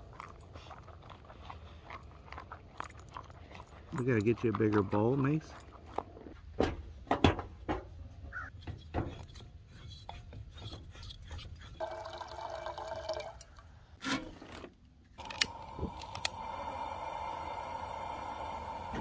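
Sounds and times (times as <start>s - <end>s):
camp stove clicks and metal knocks: 6.6s - 9.5s
gas burner hissing: 15.2s - 19.0s.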